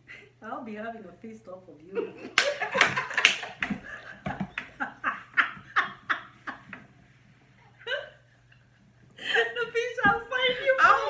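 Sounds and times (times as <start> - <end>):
women laughing: 1.9 - 6.8, 7.7 - 11.0.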